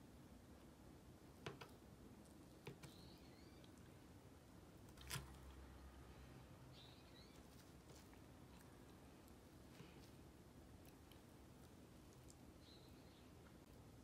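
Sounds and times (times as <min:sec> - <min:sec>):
faint bird chirps: 0:02.6 - 0:04.2, 0:06.1 - 0:07.8, 0:12.4 - 0:13.7.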